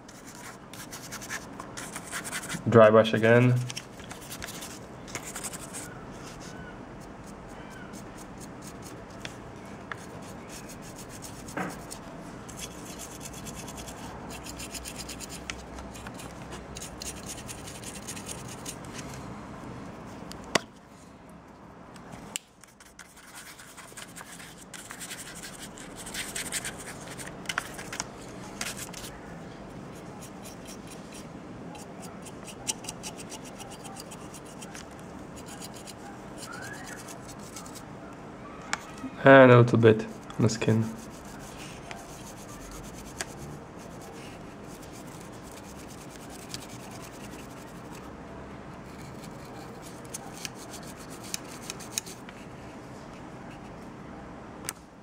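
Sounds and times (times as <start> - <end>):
paint brush scrubbing bristles: 10.0 - 18.8, 30.0 - 37.8, 40.2 - 48.0.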